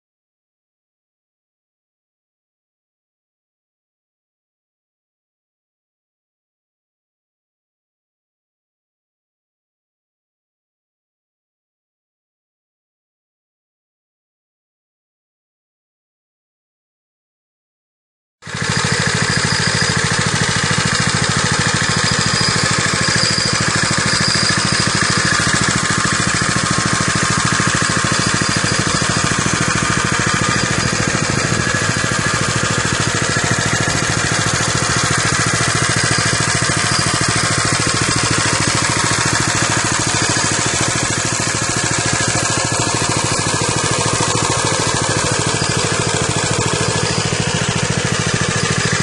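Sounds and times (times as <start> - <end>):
minibike engine idling: 18.5 - 49.0.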